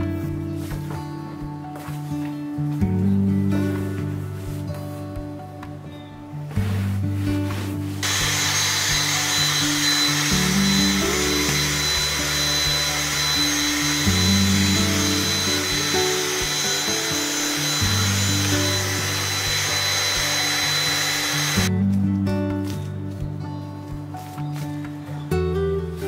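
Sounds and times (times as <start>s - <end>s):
background music: 0.0s - 26.0s
stick vacuum cleaner running: 6.6s - 21.7s.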